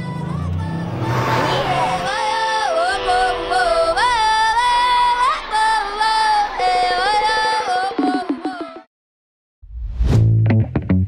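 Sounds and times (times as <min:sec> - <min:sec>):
music with sung melody: 0:02.0 - 0:08.9.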